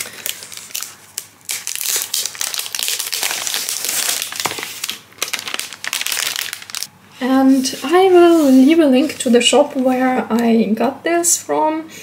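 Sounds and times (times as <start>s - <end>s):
plastic wrapping crinkling: 0.0s - 6.9s.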